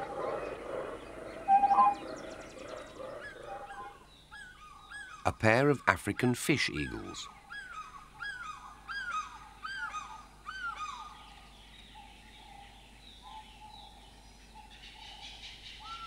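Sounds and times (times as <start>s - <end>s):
eagles calling with ringing yelps: 0.0s - 5.2s, 7.5s - 11.2s.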